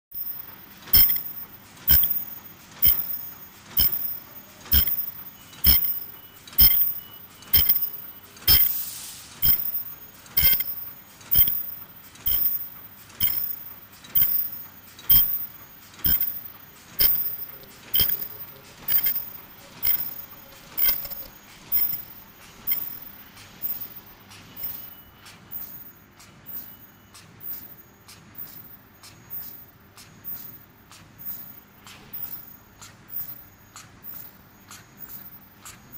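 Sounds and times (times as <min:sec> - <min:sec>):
machine clacking stroke: 0:00.1 - 0:35.9
mechanical hum: 0:00.1 - 0:35.9
short hiss: 0:08.5 - 0:11.6.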